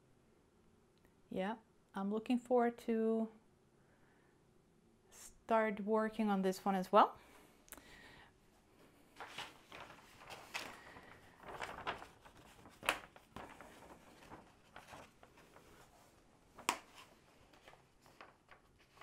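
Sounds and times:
canvas and plastic film rustling: 0:09.1 - 0:19.0
sharp plastic crackles: 0:09.2 - 0:15.8, 0:16.5 - 0:19.0.

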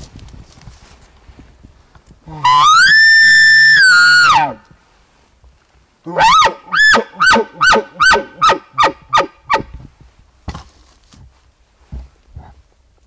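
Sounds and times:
elk call bugle: 0:02.3 - 0:04.6, 0:06.1 - 0:09.7
elk call chuckles: 0:06.2 - 0:08.6.

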